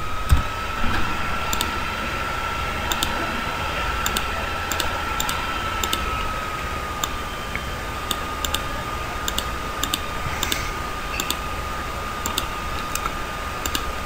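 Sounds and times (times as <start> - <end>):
low hum: 0.0 - 14.0
mouse and keyboard clicks: 9.3 - 11.4.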